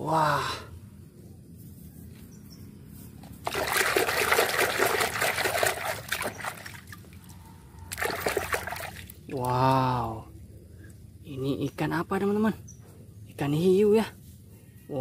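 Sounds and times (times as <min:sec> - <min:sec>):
hand scrubbing in soapy water: 0:03.4 - 0:06.9, 0:07.9 - 0:09.0
water splash: 0:03.4 - 0:07.1, 0:07.9 - 0:09.2.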